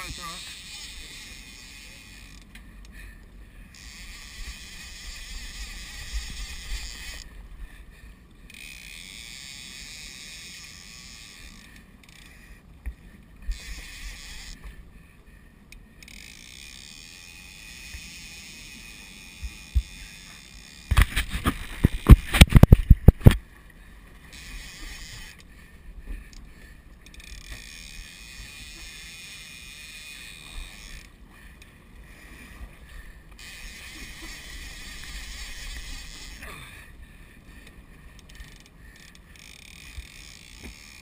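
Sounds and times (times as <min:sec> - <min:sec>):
water washing around a boat: 0:30.4 - 0:41.0.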